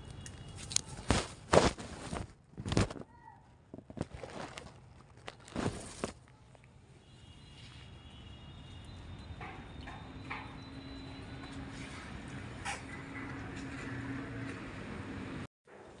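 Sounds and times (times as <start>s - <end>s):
scrapes and thumps: 1.0s - 6.3s.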